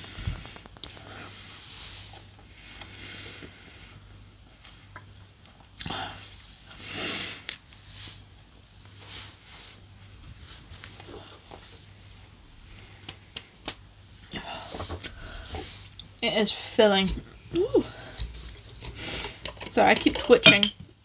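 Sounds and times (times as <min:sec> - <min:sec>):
low electrical hum: 0:00.0 - 0:21.0
person breathing out heavily: 0:14.3 - 0:15.8.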